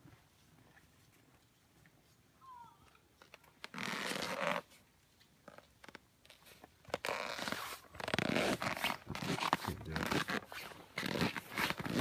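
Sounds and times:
rustling and crunching in snow: 6.3 - 12.0.

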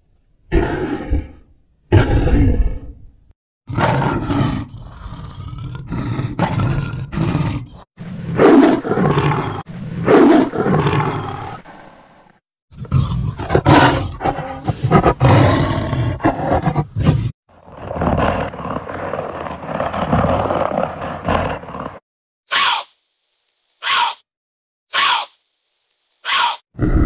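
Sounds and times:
big cats roaring and growling: 0.5 - 3.1, 3.7 - 11.9, 12.7 - 22.0, 26.8 - 27.0.

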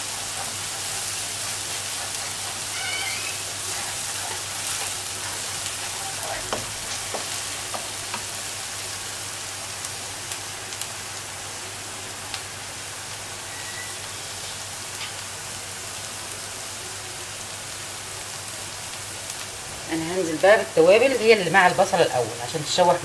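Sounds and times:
wooden spoon scraping a pan: 0.0 - 8.4
onion sizzling in oil: 0.0 - 23.0.

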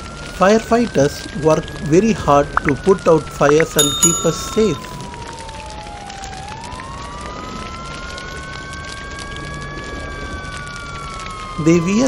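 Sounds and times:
fire engine siren wailing: 0.0 - 12.0.

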